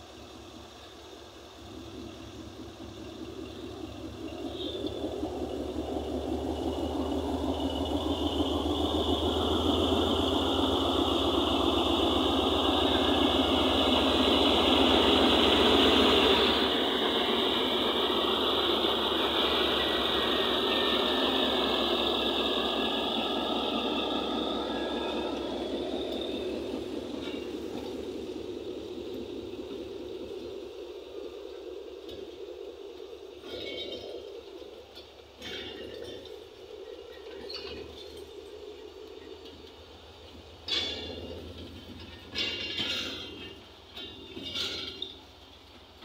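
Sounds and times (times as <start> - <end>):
high steady whine: 0.0 - 45.8
diesel locomotive engine rumble: 0.0 - 46.0.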